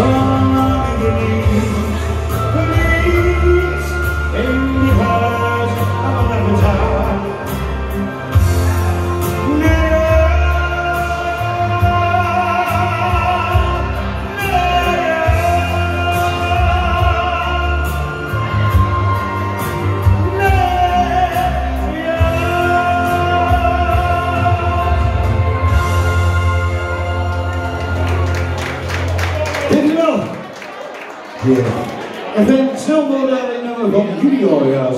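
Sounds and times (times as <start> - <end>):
bass line: 0.0 - 29.8.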